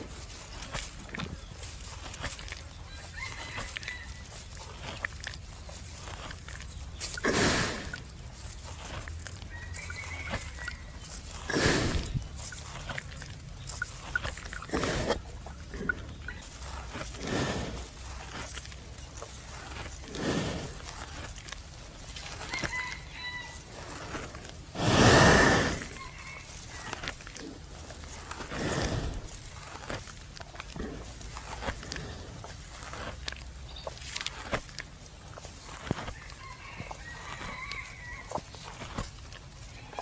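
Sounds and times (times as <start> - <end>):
buffalo chewing cud: 0.0 - 40.0.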